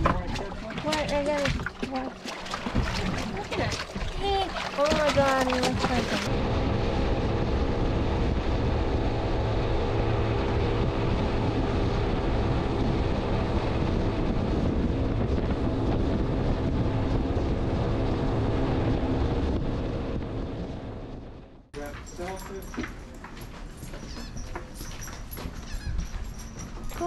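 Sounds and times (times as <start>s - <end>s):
rush of boat wake: 0.0s - 20.6s
wind on microphone: 0.0s - 21.4s
outboard engines droning: 0.0s - 27.0s.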